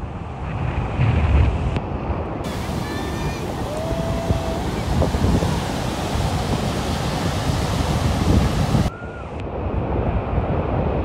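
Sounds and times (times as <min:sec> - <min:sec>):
wind buffeting the microphone: 0:00.0 - 0:11.0
surf breaking over sand: 0:00.4 - 0:08.9.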